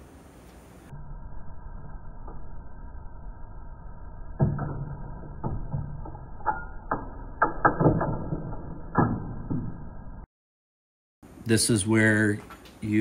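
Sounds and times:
muffled hum: 0.0s - 7.0s
metal clicks and knocks: 4.4s - 9.8s.

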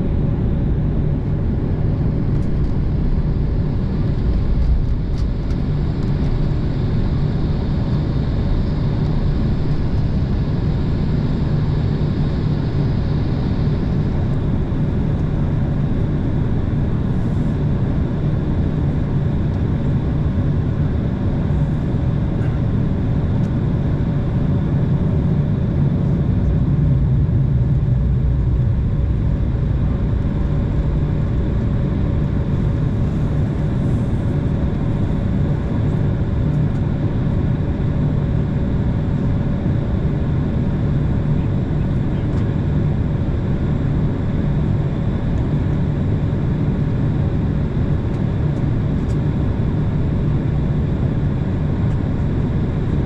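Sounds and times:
jet engines rumbling in cabin: 0.0s - 53.0s.

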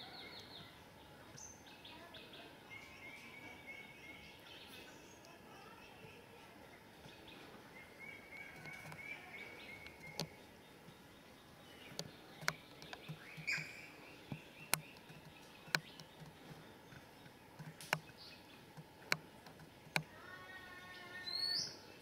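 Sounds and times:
small birds chirping: 0.0s - 22.0s
sharp clicks or taps: 14.3s - 16.4s.

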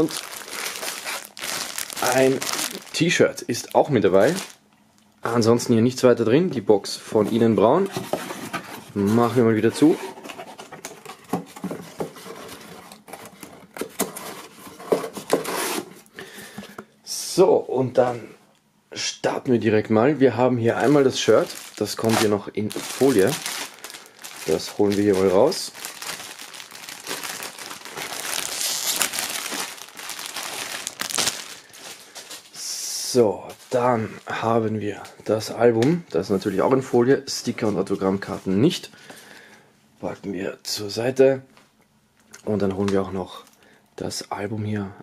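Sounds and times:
plastic bag crinkling: 0.0s - 4.6s, 20.7s - 32.6s.

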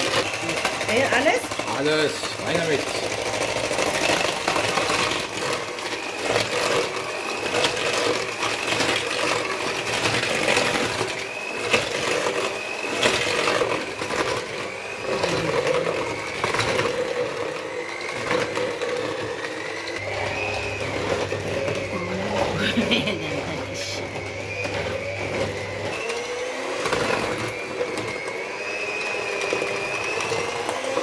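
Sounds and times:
electric hand mixer whining: 0.0s - 31.0s.

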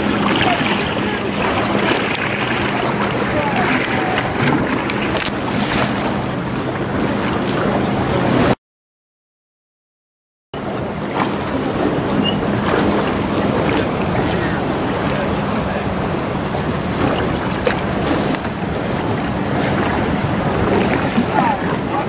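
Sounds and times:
wind noise on microphone: 10.6s - 22.0s.

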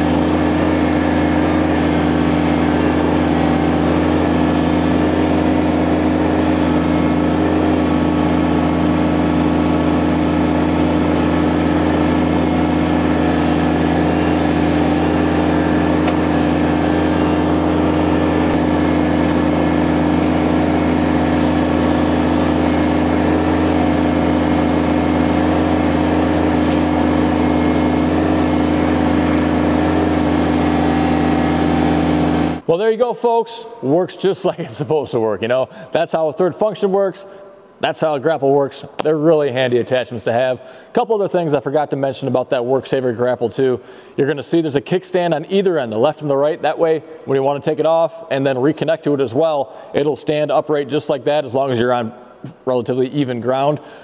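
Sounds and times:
tractor diesel engine running: 0.0s - 32.7s.

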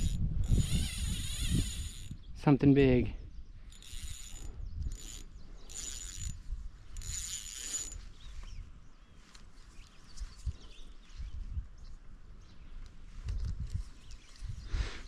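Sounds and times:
fishing reel whirring: 0.0s - 2.2s, 3.7s - 8.2s.

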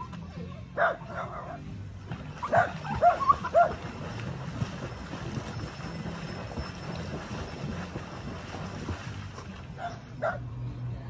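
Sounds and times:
steady low hum: 0.7s - 11.0s
small dog barking: 0.8s - 1.6s, 2.5s - 3.8s, 9.8s - 10.4s.

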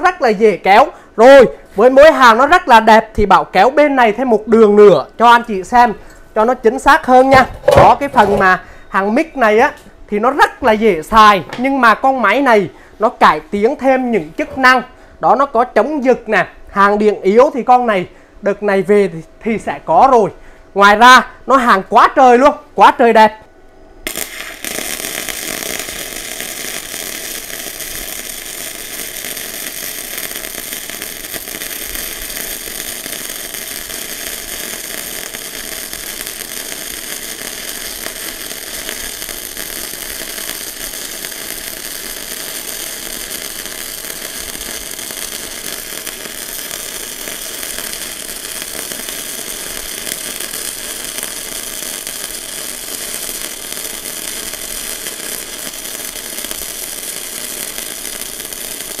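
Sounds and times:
welding arc crackling hiss: 0.0s - 9.9s, 24.0s - 59.0s.

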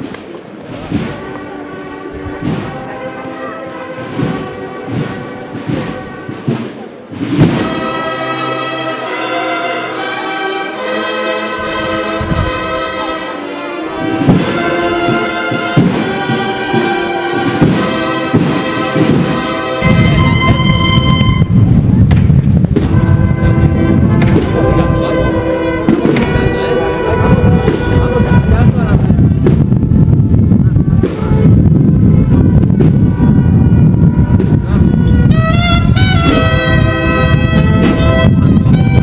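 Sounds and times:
brass band playing slow march: 0.0s - 39.0s
sharp thumps: 14.2s - 29.9s
low rumble: 17.4s - 39.0s.

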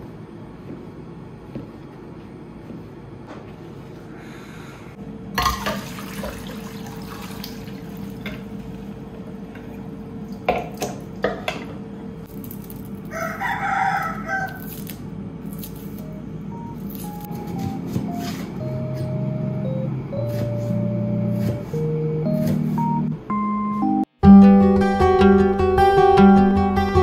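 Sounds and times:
water running in sink: 5.4s - 11.1s
rooster crowing: 13.1s - 14.8s.

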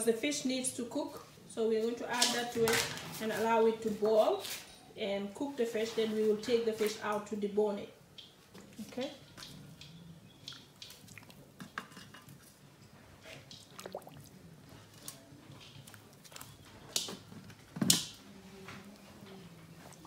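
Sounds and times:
juice boiling with pops: 8.1s - 20.0s.

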